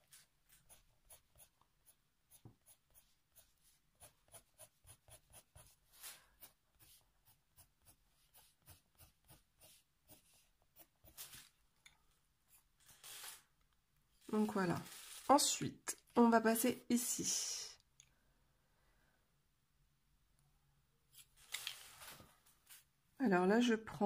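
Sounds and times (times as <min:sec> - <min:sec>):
colored pencil scratching on paper: 0:00.0 - 0:11.5.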